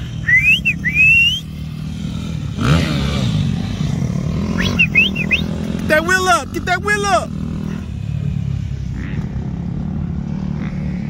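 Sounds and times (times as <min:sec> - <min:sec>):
dirt bike engine revving: 0:00.0 - 0:11.0
high gliding whistles: 0:00.2 - 0:01.6, 0:04.5 - 0:05.6.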